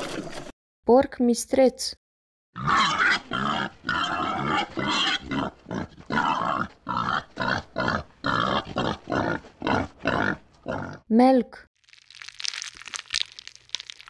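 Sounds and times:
wild boars calling: 2.6 - 11.0.

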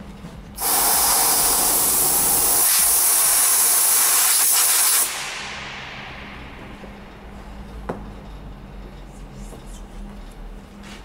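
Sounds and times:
compressed air hissing: 0.6 - 6.9.

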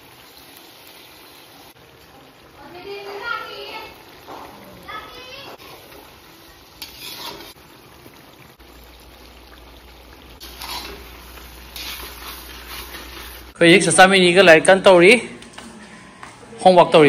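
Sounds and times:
meat sizzling in a wok: 0.0 - 13.6
spatula scraping a pan: 6.6 - 7.7, 10.4 - 13.6.

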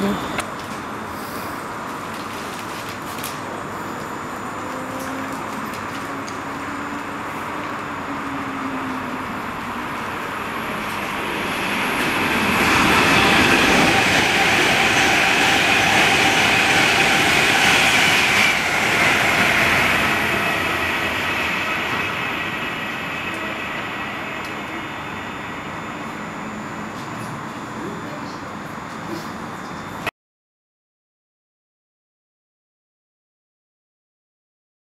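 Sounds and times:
train wheels rushing on rails: 4.9 - 27.9.

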